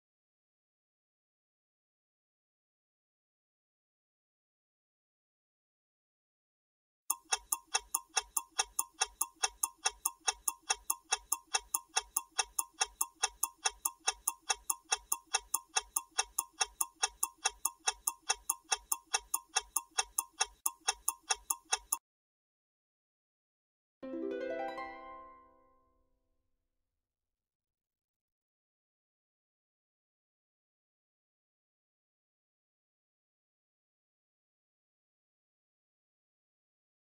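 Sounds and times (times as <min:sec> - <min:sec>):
clock-like ticking: 0:07.1 - 0:22.0.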